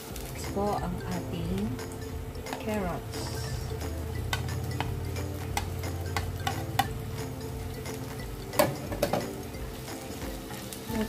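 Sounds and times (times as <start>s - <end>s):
faint frying sizzle: 0.0s - 11.0s
steady low hum: 0.5s - 8.5s
spatula clicking and scraping: 3.8s - 7.0s.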